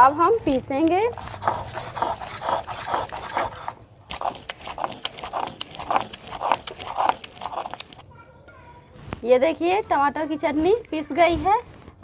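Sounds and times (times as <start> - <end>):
bangles jingling: 0.4 - 8.0, 9.5 - 10.9
stone roller scraping grinding stone: 0.5 - 8.0.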